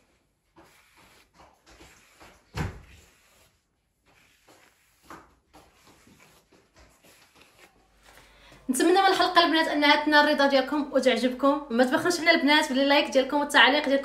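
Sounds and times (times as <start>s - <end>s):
brush strokes through wet hair: 0.0s - 8.4s.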